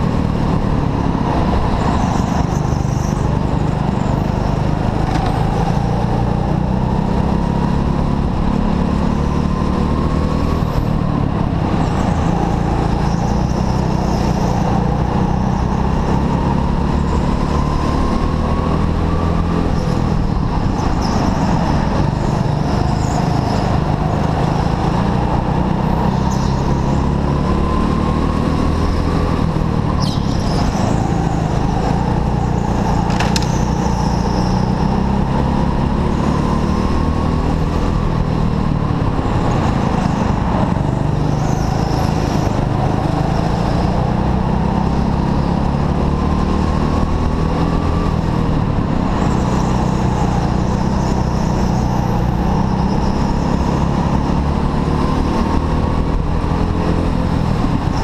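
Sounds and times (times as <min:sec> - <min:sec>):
go-kart engine whining: 0:00.0 - 0:58.0.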